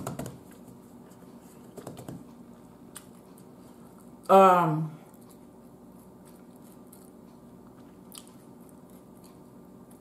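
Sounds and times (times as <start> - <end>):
person chewing food: 2.5 - 4.3, 5.0 - 10.0.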